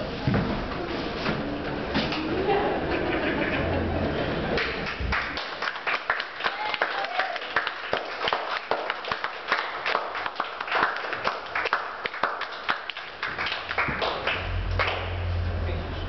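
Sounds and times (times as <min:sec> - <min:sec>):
audience clapping: 0:04.4 - 0:15.3
low hum: 0:14.2 - 0:16.0.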